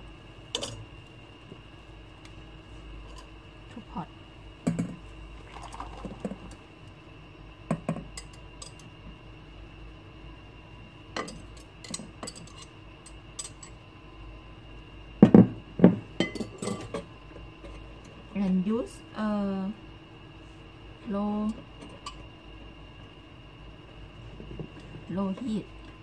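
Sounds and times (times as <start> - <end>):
liquid pouring into pot: 5.3 - 6.6.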